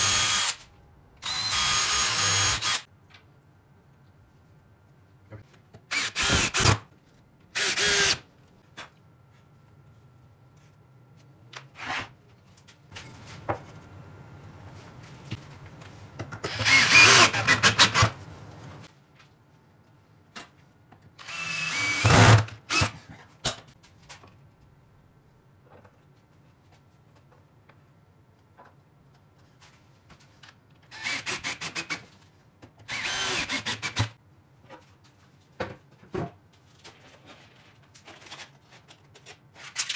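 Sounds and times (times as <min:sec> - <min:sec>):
cordless drill driving screws: 0:00.0 - 0:00.6, 0:01.2 - 0:02.8, 0:05.9 - 0:06.8, 0:07.6 - 0:08.2, 0:16.5 - 0:18.1, 0:21.2 - 0:22.9, 0:30.9 - 0:31.9, 0:32.9 - 0:34.1.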